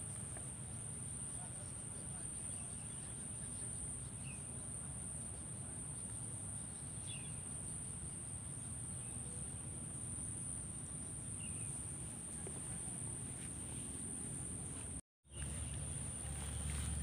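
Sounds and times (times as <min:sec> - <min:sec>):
low outdoor rumble: 0:07.4 - 0:17.0.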